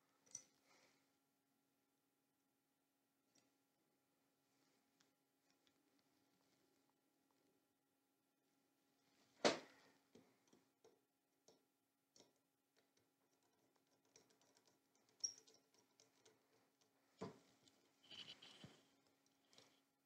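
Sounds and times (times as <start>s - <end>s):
faint clicks and scrapes: 9.1s - 20.0s.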